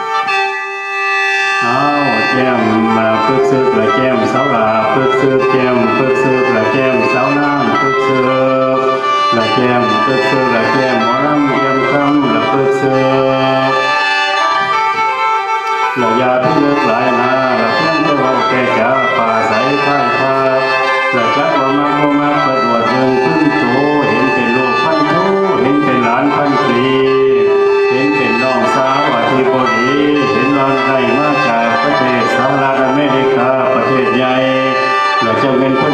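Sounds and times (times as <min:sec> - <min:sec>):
free-reed mouth organ playing: 0:00.0 - 0:35.9
man singing: 0:01.5 - 0:15.0, 0:16.0 - 0:35.9.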